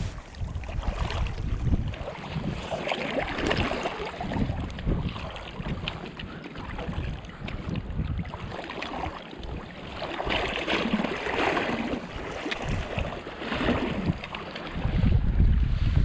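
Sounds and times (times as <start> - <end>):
wind on microphone: 0.0 - 16.0
river water flowing: 1.7 - 4.5.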